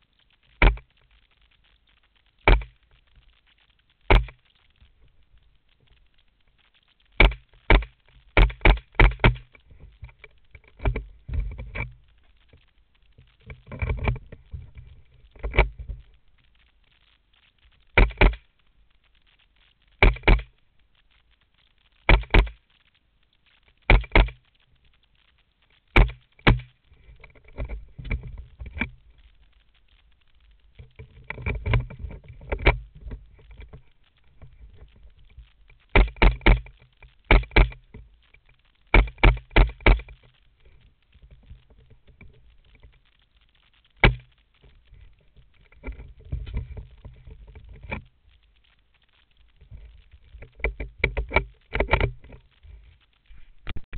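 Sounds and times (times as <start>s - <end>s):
rifle handling rustling and clicking: 0.4s - 1.7s, 2.4s - 6.0s, 6.8s - 16.2s, 22.0s - 22.7s, 23.4s - 24.6s, 25.9s - 29.4s, 30.7s - 43.0s, 43.7s - 53.8s.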